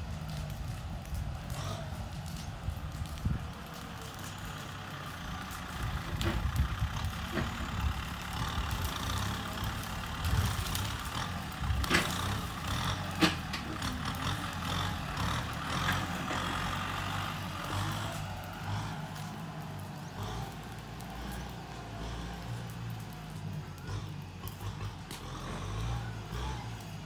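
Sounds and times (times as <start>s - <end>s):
tractor engine under load: 0.0s - 27.0s
sharp knocks and cracks: 8.7s - 14.2s.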